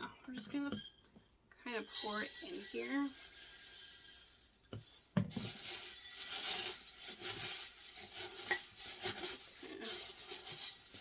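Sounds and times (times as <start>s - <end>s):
potting mix pouring gritty rustle: 1.9s - 11.0s.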